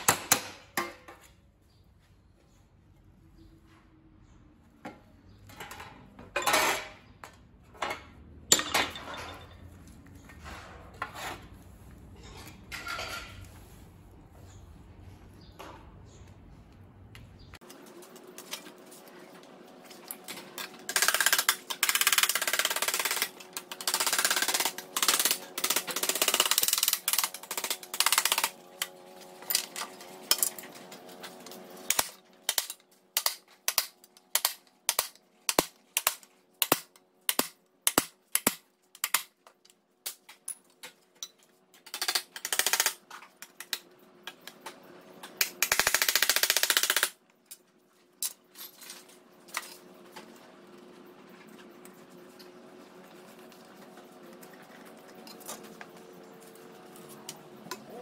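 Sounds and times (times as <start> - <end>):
rustling and scraping of paper and steel: 9.7 - 15.4, 17.6 - 20.9, 28.5 - 33.7.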